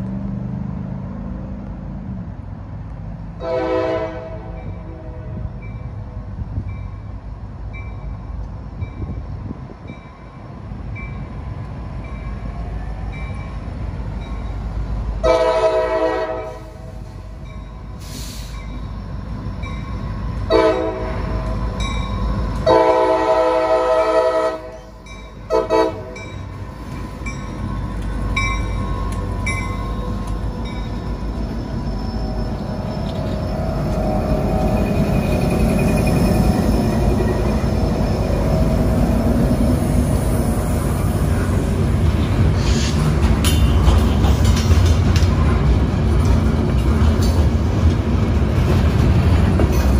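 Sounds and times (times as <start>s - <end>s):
low rumble of diesel engines: 0.0s - 49.9s
locomotive air horn blasts: 3.4s - 5.5s, 15.2s - 17.0s, 20.5s - 21.3s, 22.6s - 24.9s, 25.5s - 26.3s
crossing bell dinging: 17.4s - 18.0s, 18.6s - 23.0s, 24.6s - 38.6s.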